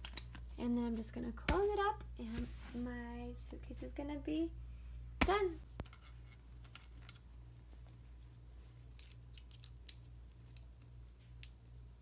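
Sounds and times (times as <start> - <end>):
clothes rustling: 5.7 - 11.2.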